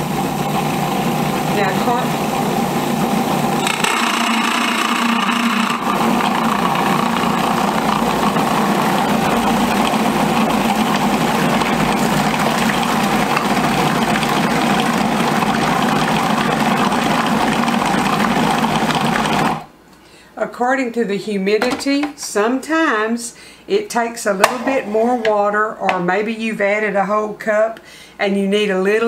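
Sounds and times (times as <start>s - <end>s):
food processor motor running: 0.0s - 19.7s.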